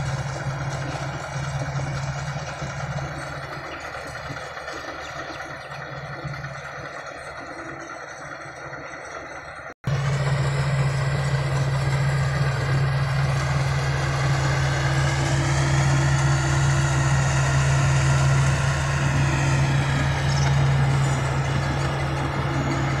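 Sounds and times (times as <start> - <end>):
combine harvester engine hum: 0.0 - 23.0.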